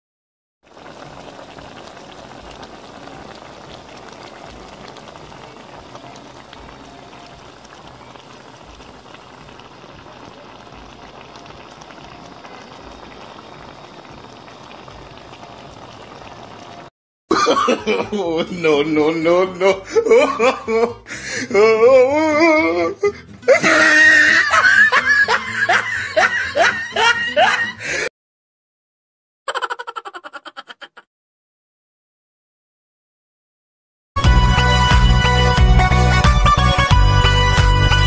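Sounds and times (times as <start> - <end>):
broth boiling in a pan: 0.6 - 16.9.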